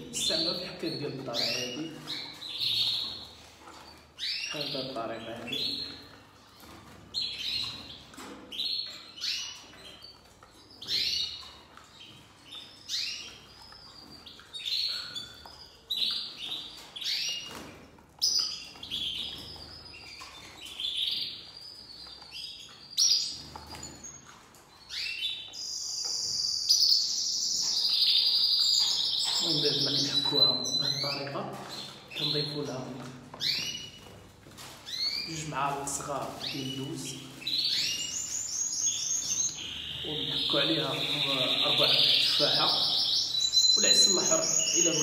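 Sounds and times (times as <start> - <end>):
canaries chirping: 0.0 - 45.0
high trill of bird song: 34.9 - 45.0.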